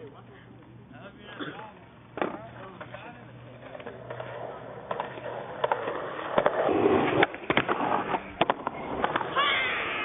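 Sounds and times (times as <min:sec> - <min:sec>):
skateboard rolling on concrete: 0:01.6 - 0:10.0
skateboard clacking on ground: 0:02.1 - 0:10.0.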